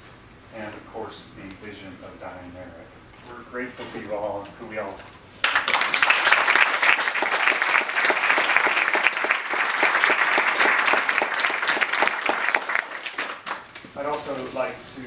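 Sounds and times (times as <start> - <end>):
audience applauding: 5.4 - 13.8.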